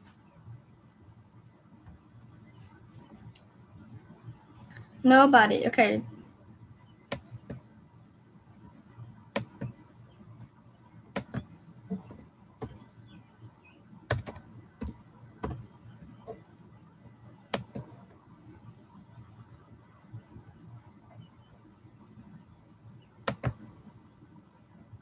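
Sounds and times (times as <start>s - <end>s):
keyboard keys clicking: 7.1s - 7.6s, 9.4s - 9.8s, 11.1s - 12.8s, 14.1s - 15.7s, 23.3s - 23.6s.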